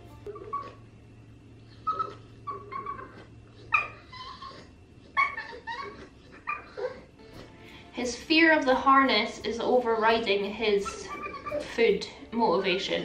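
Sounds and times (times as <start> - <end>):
dog whining in high whimpers: 1.7 - 7.1, 10.8 - 11.7.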